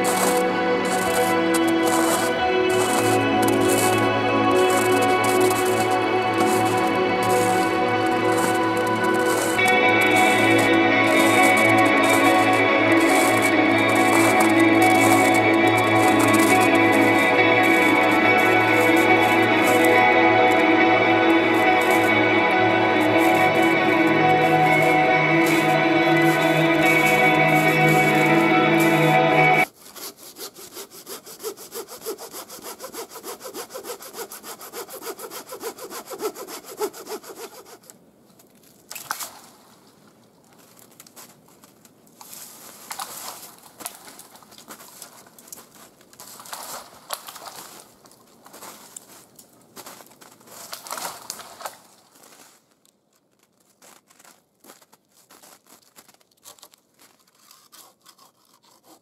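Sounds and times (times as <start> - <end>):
hand saw cutting wood: 0.0 - 38.0, 55.4 - 59.0.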